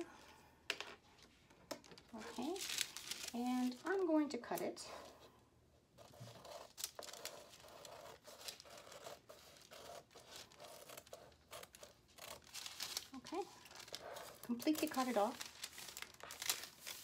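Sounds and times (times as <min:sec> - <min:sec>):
shears snipping paper: 0:09.6 - 0:17.0.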